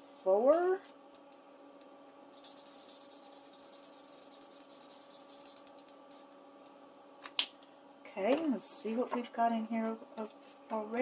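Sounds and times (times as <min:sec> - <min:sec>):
marker scribbling on paper: 0:02.4 - 0:06.4.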